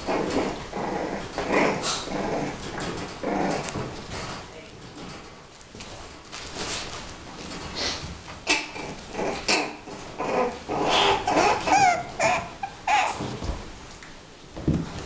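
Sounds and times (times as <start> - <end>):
puppies yipping and whining: 9.4 - 13.3.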